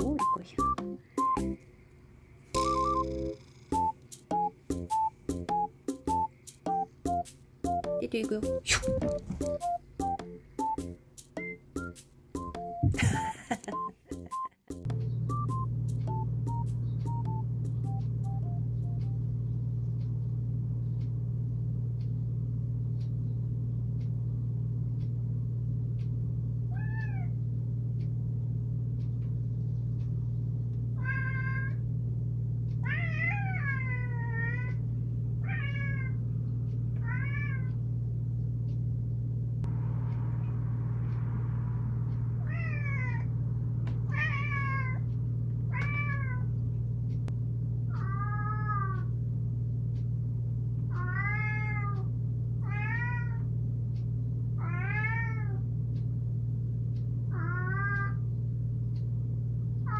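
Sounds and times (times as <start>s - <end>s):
steady low hum: 0.0s - 59.9s
cat meowing: 26.7s - 27.4s, 31.0s - 31.8s, 32.8s - 34.8s, 35.4s - 36.2s, 44.1s - 45.0s, 48.0s - 49.1s, 51.0s - 52.0s.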